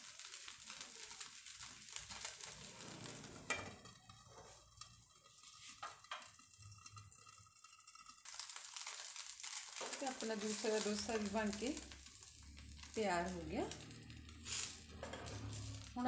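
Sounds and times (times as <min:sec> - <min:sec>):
batter sizzling in a pan: 0:00.0 - 0:16.0
steel lid on pan: 0:02.1 - 0:09.0.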